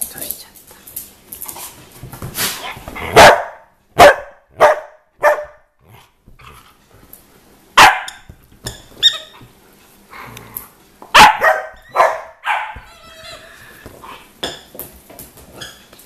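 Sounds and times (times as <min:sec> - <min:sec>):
dogs barking: 0:03.0 - 0:05.6, 0:07.8 - 0:08.3, 0:11.1 - 0:12.9.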